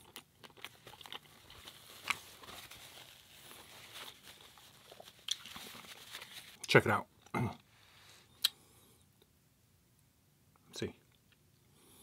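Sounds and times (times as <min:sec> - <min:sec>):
soft rustling of food handling: 0:00.0 - 0:08.4.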